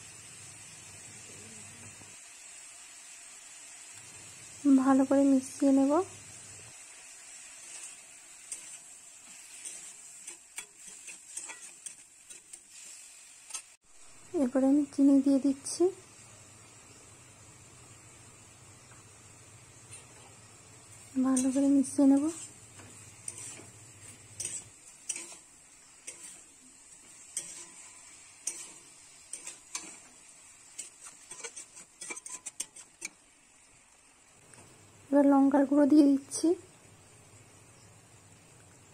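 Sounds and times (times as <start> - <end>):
faint sizzle in hot oil: 0.0 - 38.9
metal spatula scraping pan: 7.4 - 13.8, 19.8 - 33.2.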